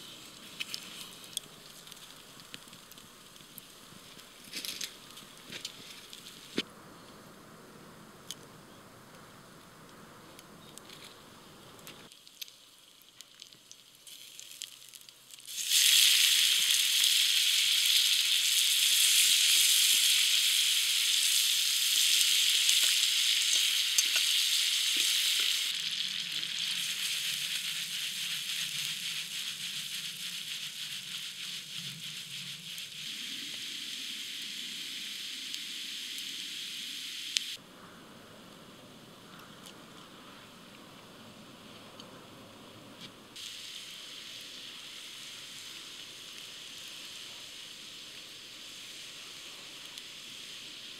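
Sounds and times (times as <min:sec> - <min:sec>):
fat sizzling in a skillet: 0:12.1 - 0:37.6, 0:43.4 - 0:50.9.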